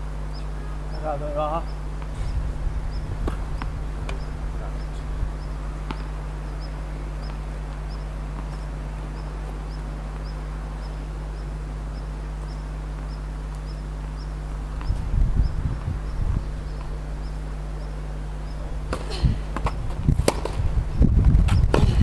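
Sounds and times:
steady low hum: 0:00.0 - 0:22.0
faint high chirp: 0:00.3 - 0:18.7.

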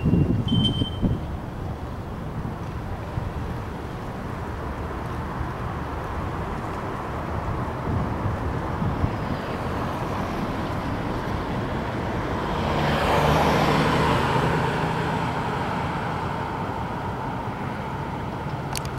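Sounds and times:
background traffic noise: 0:00.0 - 0:18.9
car driving past: 0:12.2 - 0:18.1.

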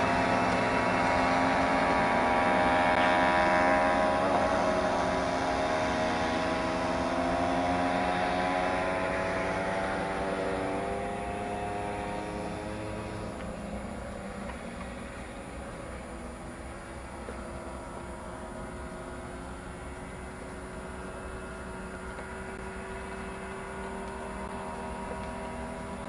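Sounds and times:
two-stroke moped engines buzzing: 0:00.0 - 0:26.0.

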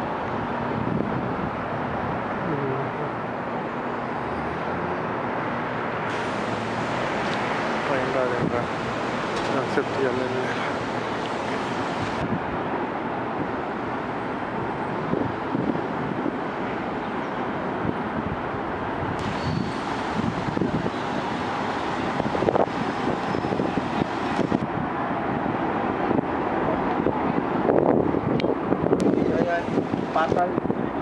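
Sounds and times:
bus going by: 0:00.0 - 0:31.0
passing cars: 0:00.0 - 0:31.0.

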